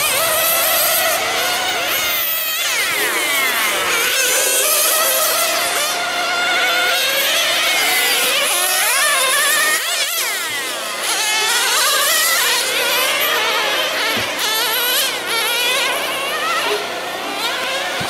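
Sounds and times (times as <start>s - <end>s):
model car engines revving: 0.0s - 18.0s.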